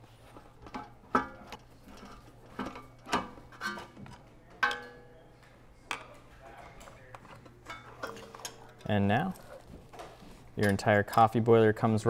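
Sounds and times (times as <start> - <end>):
metal parts clinking: 7.2 - 9.7, 10.6 - 11.4.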